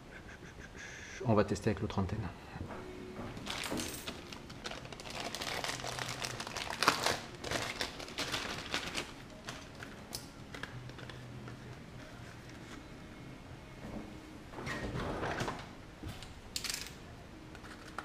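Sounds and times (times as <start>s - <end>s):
plastic bag crinkling: 3.4s - 9.9s.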